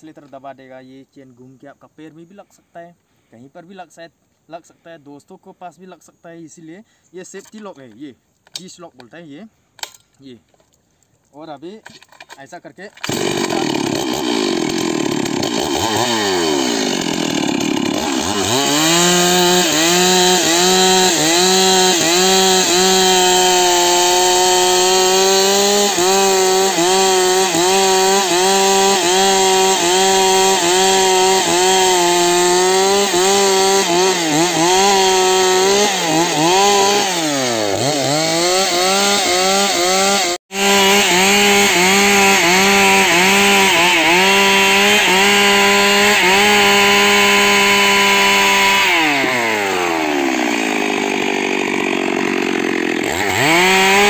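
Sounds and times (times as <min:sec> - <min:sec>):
chainsaw cutting wood: 0:13.0 - 0:54.0.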